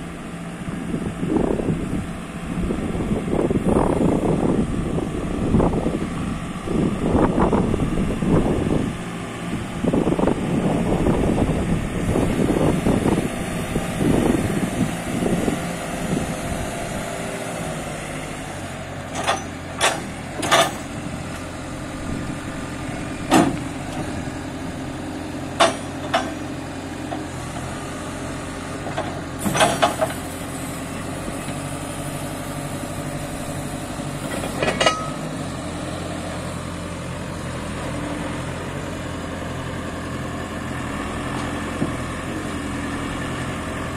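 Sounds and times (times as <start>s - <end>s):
diesel engine idling: 0.0s - 43.9s
wind buffeting microphone: 0.8s - 17.3s, 20.9s - 24.8s.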